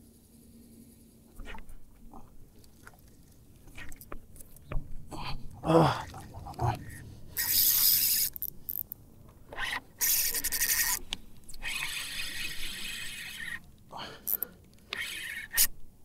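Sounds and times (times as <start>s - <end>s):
fishing reel clicking whir: 7.4s - 9.0s, 9.6s - 13.6s, 14.2s - 15.8s.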